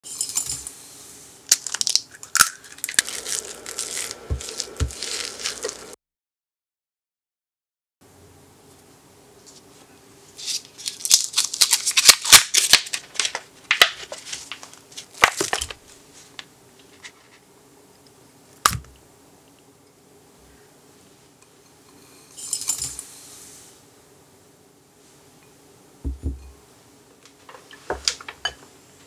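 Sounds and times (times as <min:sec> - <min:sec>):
packaging crinkling: 0:01.5 - 0:06.0, 0:10.4 - 0:17.3
sugar pouring: 0:01.5 - 0:06.0.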